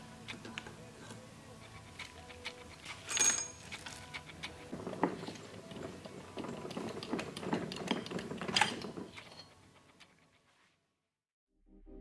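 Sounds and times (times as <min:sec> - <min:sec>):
metal parts clicking and rattling: 0:01.7 - 0:10.4.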